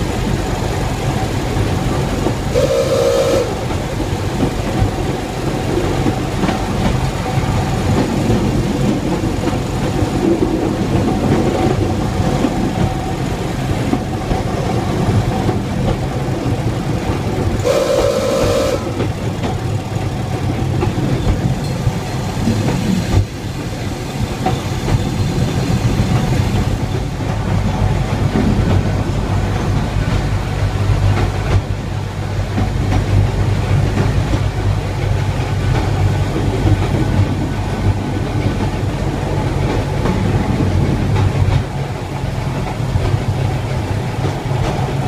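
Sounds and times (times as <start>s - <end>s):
railcar engine drone: 0.0s - 45.0s
wheel rumble: 0.0s - 45.0s
horn blast: 2.5s - 3.8s, 17.6s - 19.0s.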